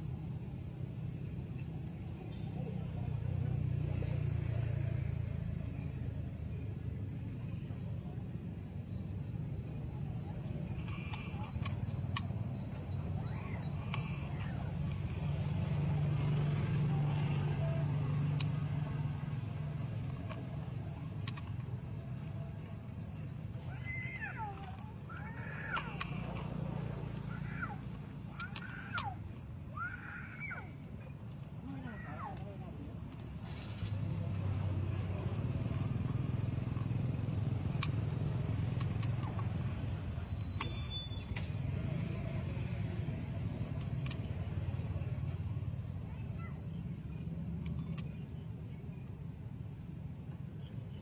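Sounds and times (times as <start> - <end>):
low engine-like hum: 0.0 - 51.0
faint clicks: 17.0 - 29.2, 32.2 - 45.6, 47.1 - 48.4.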